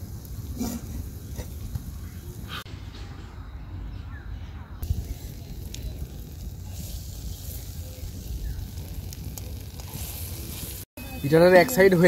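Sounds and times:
faint crackles: 4.8s - 10.9s
food sizzling in oil: 4.9s - 12.0s.

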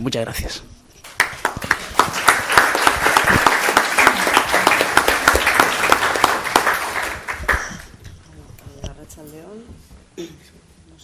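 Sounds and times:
audience applauding: 1.0s - 8.0s.

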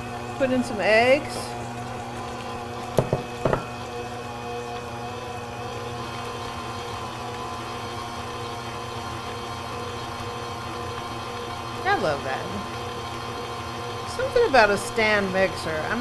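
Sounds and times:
stand mixer motor whine: 0.0s - 16.0s
short knocks: 3.0s - 3.7s.

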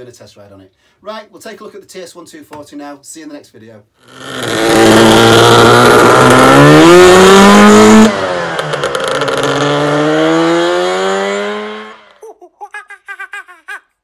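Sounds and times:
scooter engine accelerating: 4.0s - 12.2s.

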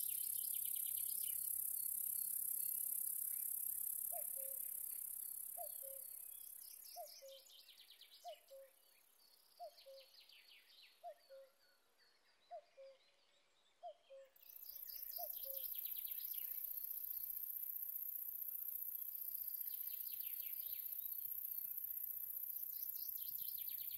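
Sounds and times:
bush-cricket stridulation hiss: 0.0s - 7.1s, 14.4s - 23.9s
faint high chirps: 0.0s - 13.2s, 13.8s - 23.9s.

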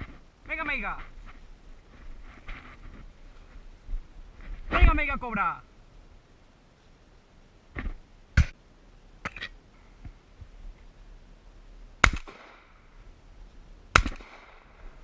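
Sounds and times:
shotgun shots with echo: 12.0s - 12.7s, 14.0s - 14.7s.

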